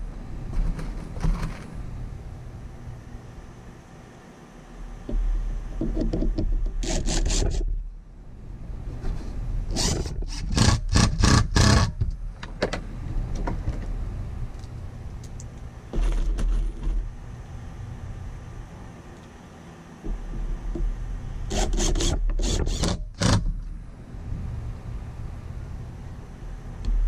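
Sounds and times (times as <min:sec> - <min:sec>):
cordless driver driving screws: 0:21.5 - 0:23.5.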